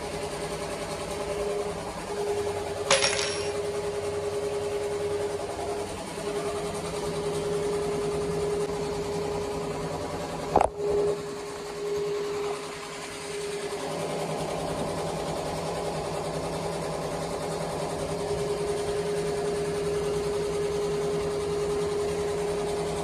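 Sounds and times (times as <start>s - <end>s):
metallic clink of hoop: 2.9s - 3.6s.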